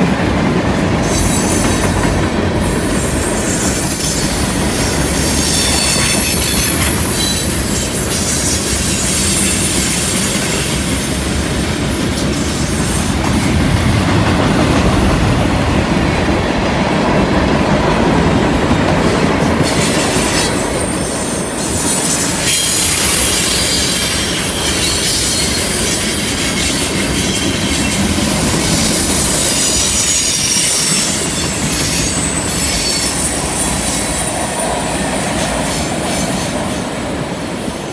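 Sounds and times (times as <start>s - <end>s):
train wheels on rail: 0.0s - 37.9s
high-pitched wheel squeal: 2.6s - 10.2s, 28.7s - 34.3s.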